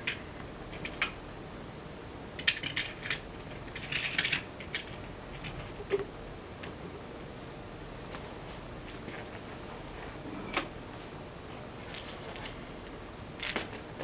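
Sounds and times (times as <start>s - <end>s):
metal parts and tools clinking: 2.4s - 5.7s.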